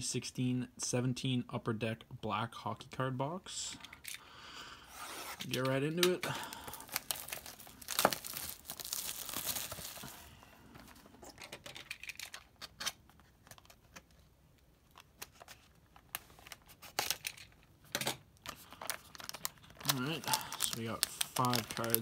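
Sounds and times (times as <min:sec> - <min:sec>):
plastic wrap crinkling and tearing: 0:05.4 - 0:11.0, 0:18.4 - 0:22.0.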